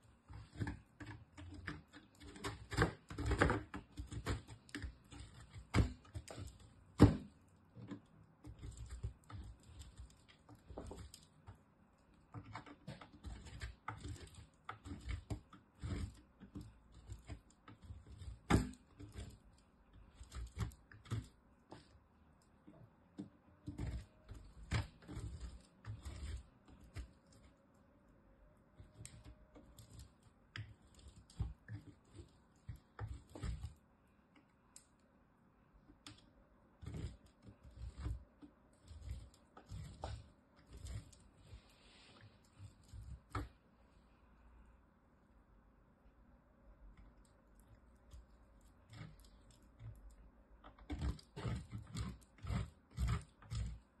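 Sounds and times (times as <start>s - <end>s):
soap scraping on metal grater: 0.3s - 11.4s, 12.3s - 21.9s, 23.6s - 27.6s, 36.8s - 41.6s, 48.1s - 54.0s.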